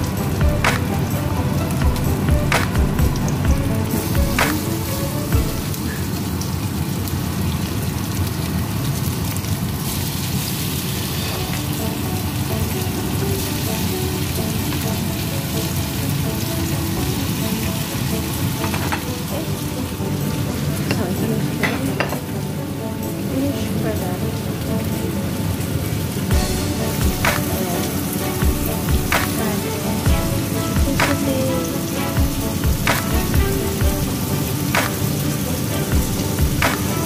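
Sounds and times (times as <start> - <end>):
skewers sizzling in frying pan: 0.0 - 37.0.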